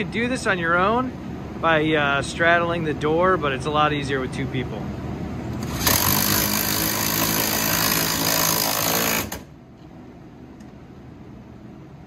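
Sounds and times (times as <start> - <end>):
cordless drill driving nut: 5.6 - 9.5.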